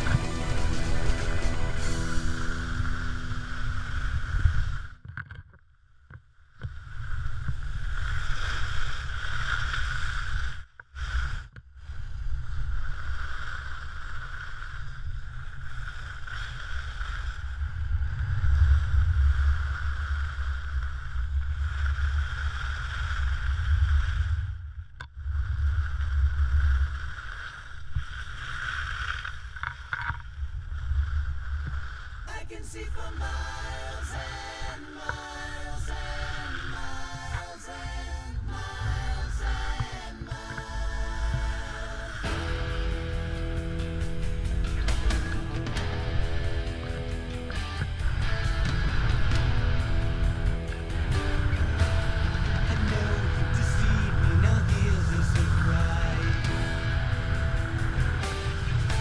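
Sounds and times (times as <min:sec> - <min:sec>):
wind rumbling on microphone: 0:00.0 - 0:05.6, 0:06.5 - 0:59.0
skis running over snow: 0:12.4 - 0:24.5.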